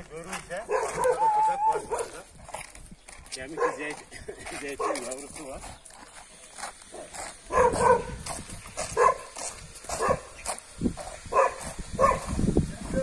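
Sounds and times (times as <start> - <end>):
dog barking: 0.7 - 2.2, 3.5 - 4.0, 4.8 - 5.2, 6.9 - 8.2, 8.9 - 10.4, 11.3 - 12.3.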